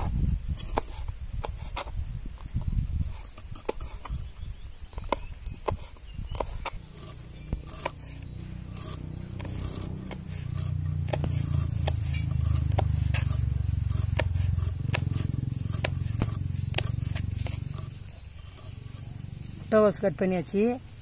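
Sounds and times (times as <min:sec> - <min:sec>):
cabbage crunching cuts: 0:00.0 - 0:19.7
low rumble: 0:07.4 - 0:21.0.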